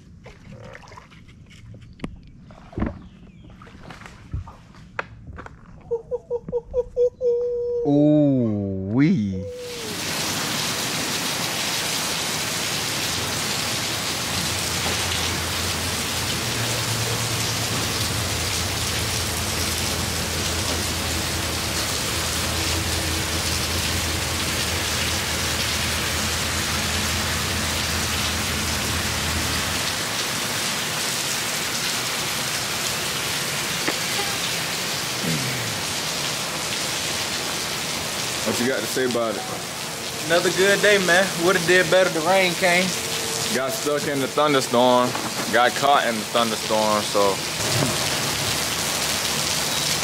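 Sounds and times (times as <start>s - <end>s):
heavy rain hissing: 9.4s - 50.0s.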